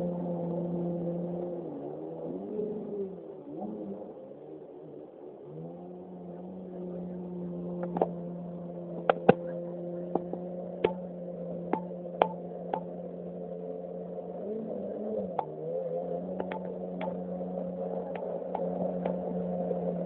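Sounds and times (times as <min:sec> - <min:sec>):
jet ski engine drone: 0:00.0 - 0:20.0
sharp clicks or knocks: 0:16.4 - 0:17.2.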